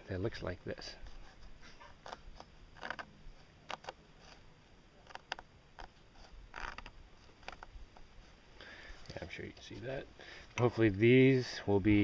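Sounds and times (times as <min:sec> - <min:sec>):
tool scratching wooden board: 0:01.0 - 0:03.1.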